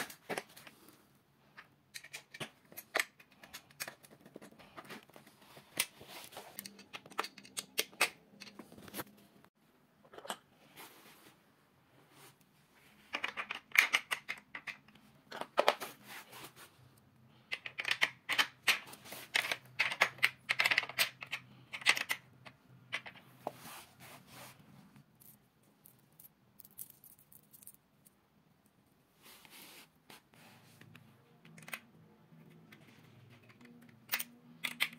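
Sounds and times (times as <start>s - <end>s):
metal hardware clicking and scraping: 1.6s - 8.8s, 32.7s - 34.9s.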